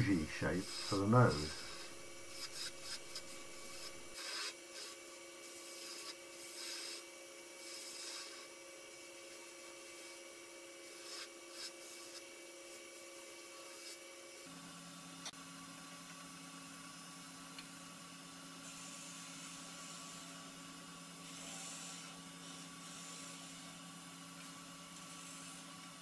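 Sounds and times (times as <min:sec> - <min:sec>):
wood lathe humming: 0:00.0 - 0:04.1
tool scraping spinning wood: 0:00.0 - 0:04.6.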